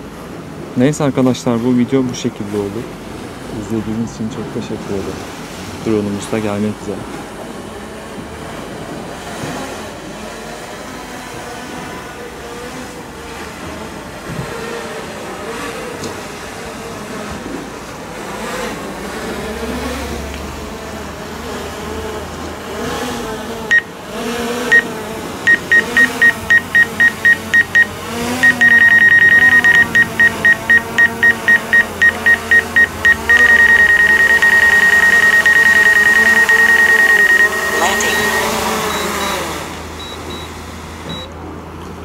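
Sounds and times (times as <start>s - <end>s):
drone propellers humming: 25.5s - 39.3s
high warning beep: 25.5s - 40.5s.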